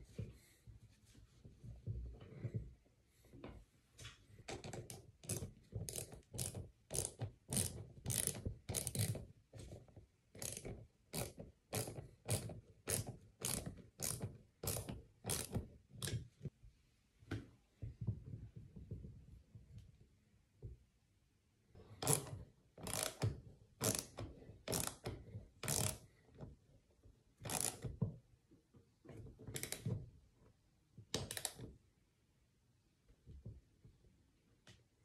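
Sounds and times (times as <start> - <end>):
hand ratchet clicking: 4.8 - 9.2, 10.4 - 15.6, 22.0 - 26.0, 27.4 - 27.9.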